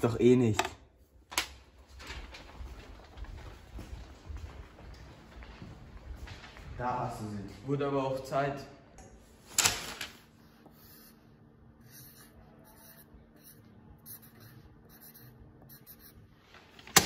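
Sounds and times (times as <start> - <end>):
paper handling noise: 1.3 - 6.8, 9.4 - 11.1, 14.1 - 17.0
pen scratching on paper: 10.6 - 11.2, 11.8 - 16.3.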